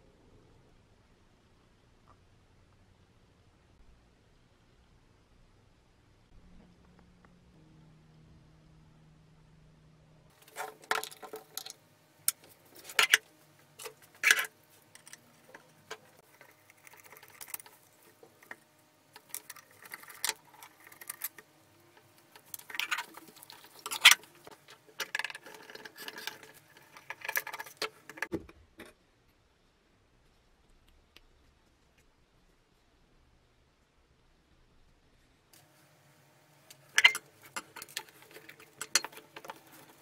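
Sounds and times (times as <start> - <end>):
metal parts clinking and rattling: 10.3 - 13.2, 22.4 - 28.3, 36.9 - 40.0.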